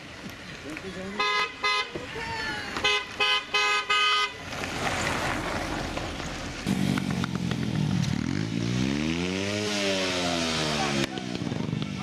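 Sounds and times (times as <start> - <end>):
car driving by on cobbles: 4.4 - 8.9
vehicle engine revving up: 4.9 - 11.6.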